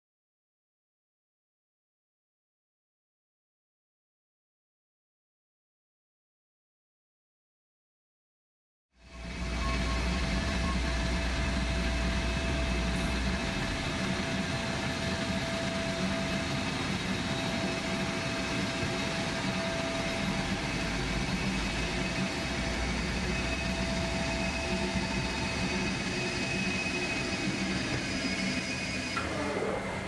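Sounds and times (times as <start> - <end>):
low machinery hum: 9.0 - 30.0
mid-pitched whine: 9.0 - 30.0.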